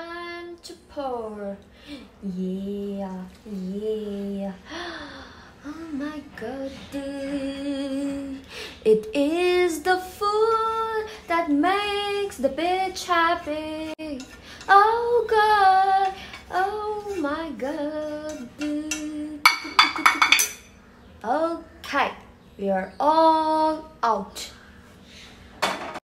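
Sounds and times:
woman singing: 0.0 - 1.6, 2.2 - 19.8.

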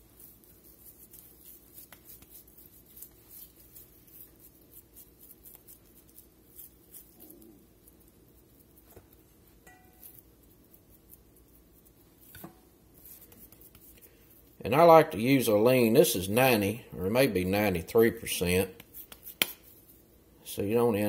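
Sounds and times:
hands patting ground meat: 0.0 - 7.2, 8.0 - 14.0, 18.4 - 19.9.

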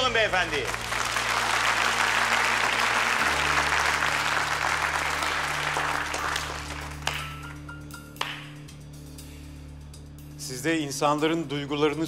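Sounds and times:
audience applauding: 0.0 - 7.6
low music drone: 0.0 - 12.0.

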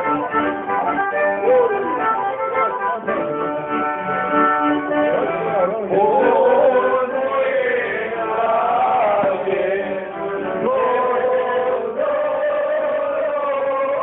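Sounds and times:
folk accompaniment: 0.0 - 14.0
man singing folk song: 5.1 - 14.0.

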